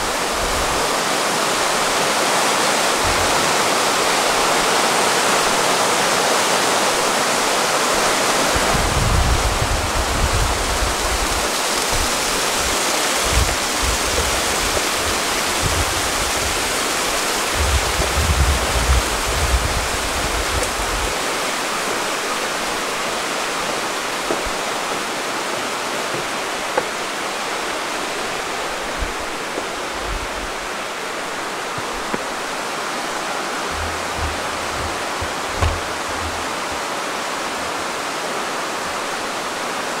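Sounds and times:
river rushing over rocks: 0:00.0 - 0:40.0
low rumbles: 0:33.2 - 0:37.0.

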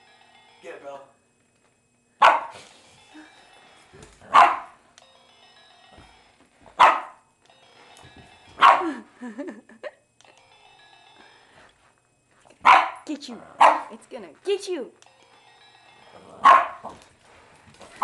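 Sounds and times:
dog barking: 0:02.2 - 0:02.6, 0:04.3 - 0:04.8, 0:06.8 - 0:07.2, 0:08.6 - 0:08.9, 0:12.6 - 0:13.9, 0:16.4 - 0:16.9.

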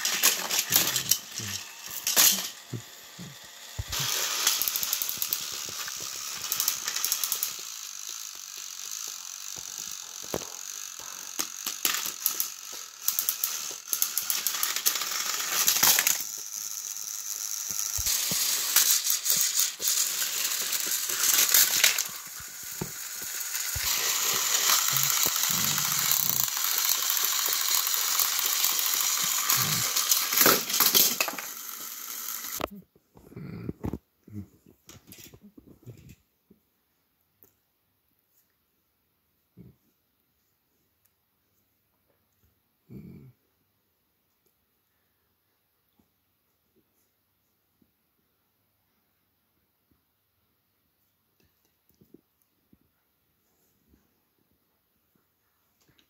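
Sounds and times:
plastic parts clicking and knocking: 0:00.0 - 0:16.5, 0:17.6 - 0:32.7
gears rattling: 0:00.0 - 0:32.7
toy train motors whirring: 0:00.0 - 0:32.7, 0:34.9 - 0:35.4.

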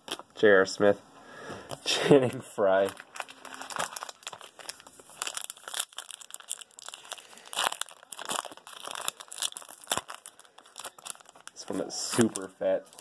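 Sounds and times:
card pack wrapper crinkling: 0:00.0 - 0:00.3, 0:02.2 - 0:13.0.

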